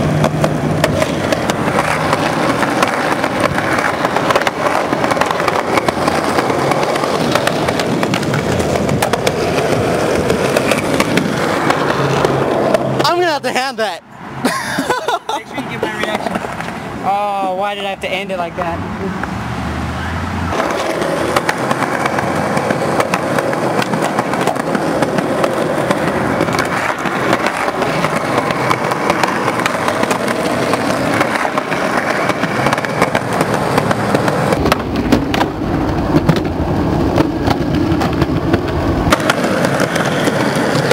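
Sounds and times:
skateboard wheels rolling on concrete: 0:00.0 - 0:40.9
deeper rumble: 0:33.3 - 0:39.2.

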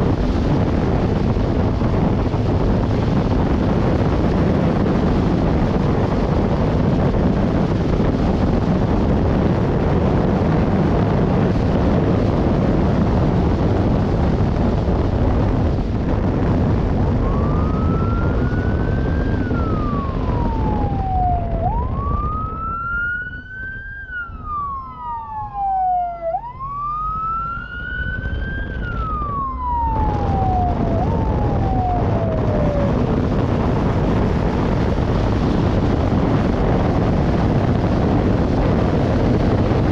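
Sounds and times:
wind rushing on microphone: 0:00.0 - 0:39.9
police siren wailing: 0:16.2 - 0:39.9.

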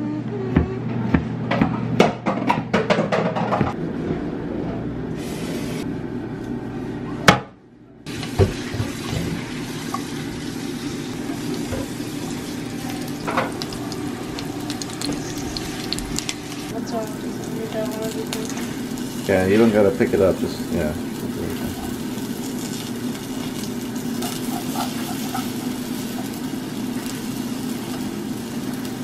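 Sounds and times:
banana slices sizzling in oil: 0:08.1 - 0:29.0.

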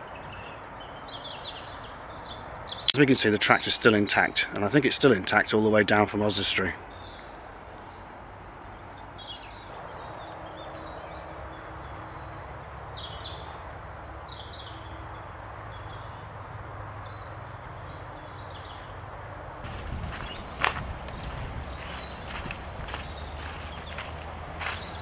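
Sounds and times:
small birds chirping: 0:05.3 - 0:25.0.

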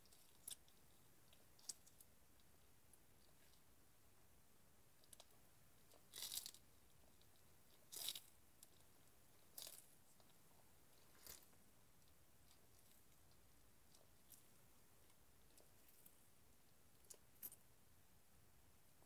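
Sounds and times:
tortoise crunching celery: 0:00.0 - 0:02.1, 0:05.0 - 0:16.2.

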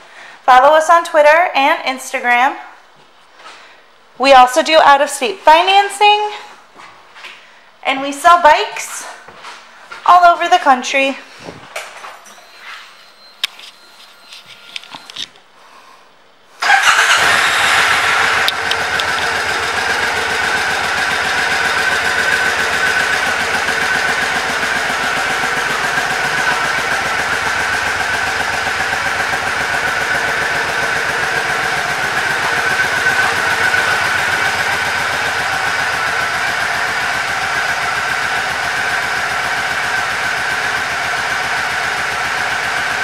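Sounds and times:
motorcycle engine starting and idling: 0:16.6 - 0:43.0.

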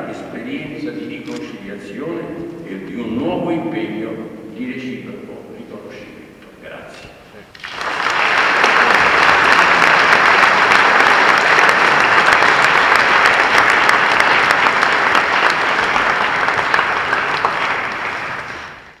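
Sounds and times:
audience applauding: 0:07.5 - 0:19.0.

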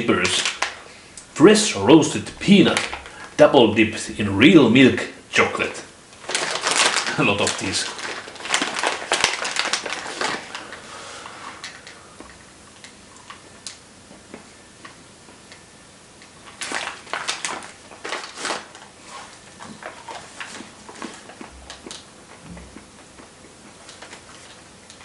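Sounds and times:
plastic bag crinkling: 0:00.0 - 0:01.0, 0:02.0 - 0:03.7, 0:06.1 - 0:12.0, 0:16.4 - 0:22.0.

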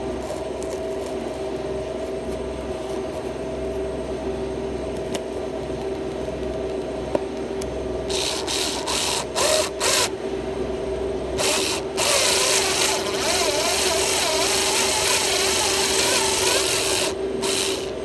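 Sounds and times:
cordless screwdriver humming: 0:08.1 - 0:10.1, 0:11.4 - 0:18.0
drill bit scraping plastic sheet: 0:11.4 - 0:17.9.

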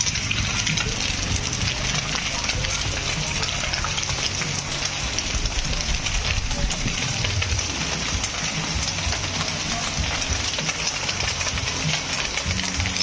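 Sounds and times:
fountain water splashing: 0:00.0 - 0:13.0.

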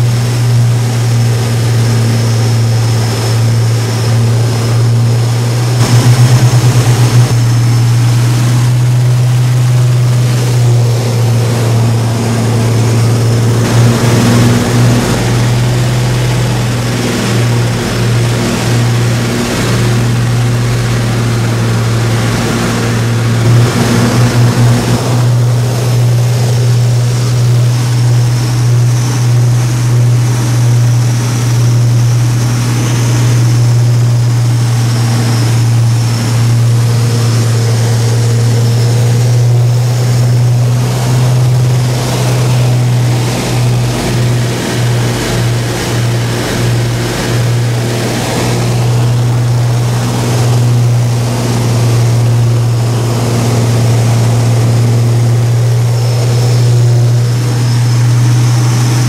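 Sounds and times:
aircraft engines droning: 0:00.0 - 0:59.0
airflow rushing over canopy: 0:00.0 - 0:59.0
pulsing throb: 0:04.4 - 0:32.1.

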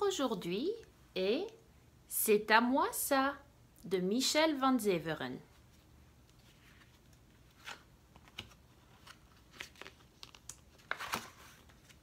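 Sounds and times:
book pages rustling: 0:05.5 - 0:12.0.

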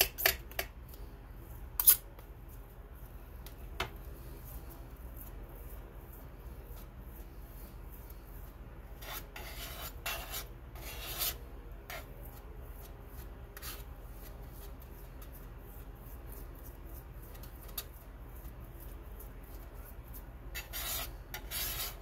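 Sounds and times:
palette knife scraping paste: 0:01.4 - 0:22.0.

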